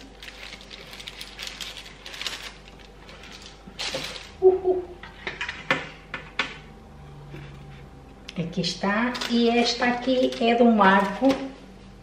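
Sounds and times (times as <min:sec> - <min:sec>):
baking paper rustling: 0:00.0 - 0:04.4, 0:08.8 - 0:11.7.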